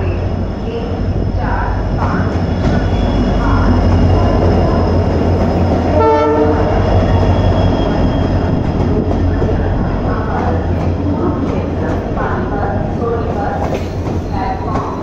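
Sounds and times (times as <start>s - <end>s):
diesel locomotives rumbling past: 0.0s - 15.0s
train coaches rolling by: 0.0s - 15.0s
train horn blast: 5.9s - 6.8s.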